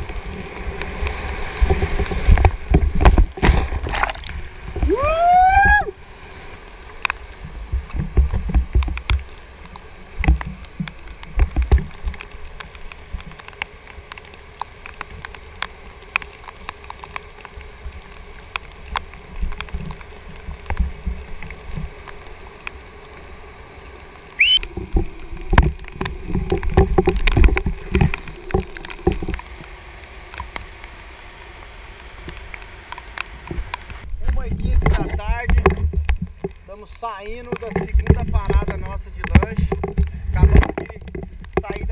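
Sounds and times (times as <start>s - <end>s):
water thudding against microphone: 1.1s - 6.0s
rising whistle-like note: 24.4s - 24.6s.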